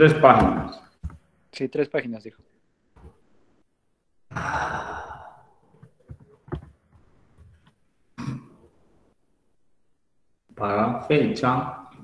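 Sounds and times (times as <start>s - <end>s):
person sighing: 4.3s - 5.7s.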